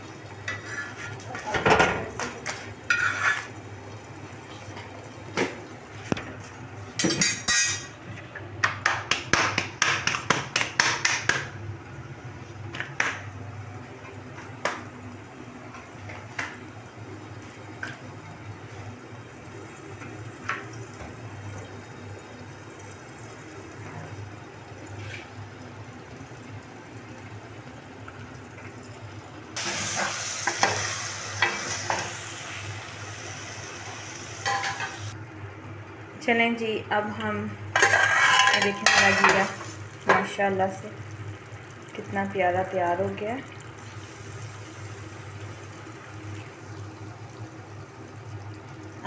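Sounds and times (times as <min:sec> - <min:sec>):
cookware and utensils clattering: 0:00.4 - 0:03.6, 0:07.0 - 0:11.4, 0:34.4 - 0:35.1, 0:37.8 - 0:40.4.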